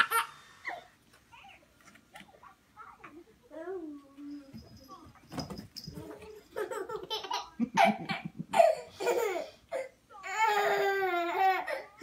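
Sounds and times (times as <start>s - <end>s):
baby laughing: 6.5s - 9.9s.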